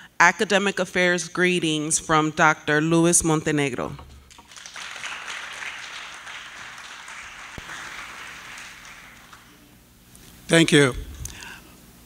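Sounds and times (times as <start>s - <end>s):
audience applauding: 4.3s - 9.7s.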